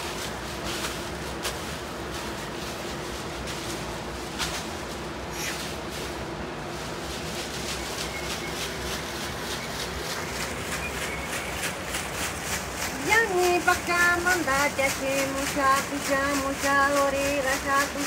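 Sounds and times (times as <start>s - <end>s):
leaves rustling swishes: 0.0s - 18.0s.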